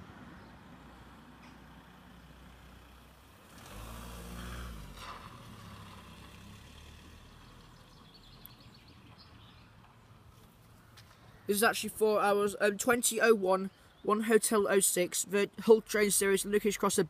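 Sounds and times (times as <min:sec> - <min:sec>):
vehicle engine passing: 0:00.0 - 0:09.5.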